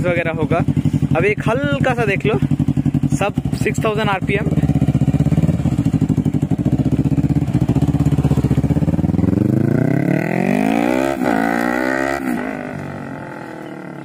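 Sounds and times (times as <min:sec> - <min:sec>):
motorcycle engine accelerating: 0:00.0 - 0:14.0.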